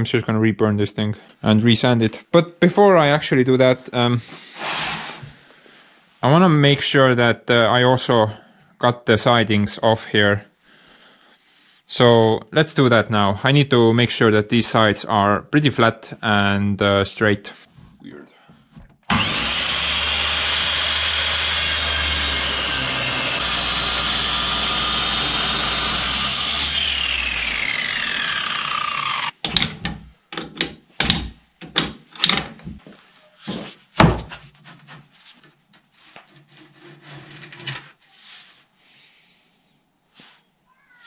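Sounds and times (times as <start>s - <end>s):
mitre saw cutting wood: 19.1s - 29.4s
wood and tools clattering: 21.9s - 32.8s, 34.0s - 38.1s.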